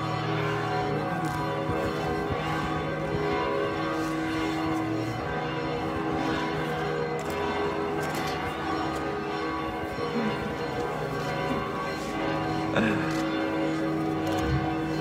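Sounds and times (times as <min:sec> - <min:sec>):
church bells pealing: 0:00.0 - 0:15.0
crowd murmur: 0:11.2 - 0:13.4.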